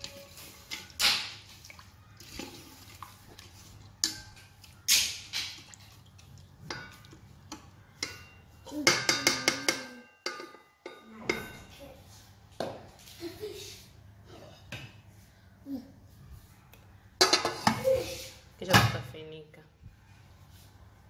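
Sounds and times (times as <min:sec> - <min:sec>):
spoon stirring rice in water: 0:00.0 - 0:08.5
spoon knocking against pot: 0:06.7 - 0:11.6.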